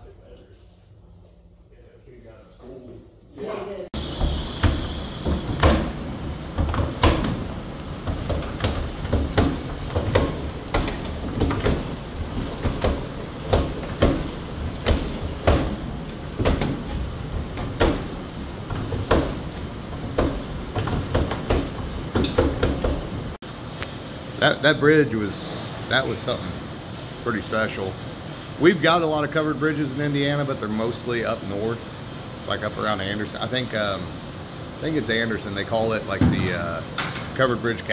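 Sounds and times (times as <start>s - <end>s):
irregular knocks: 4.0s - 23.3s.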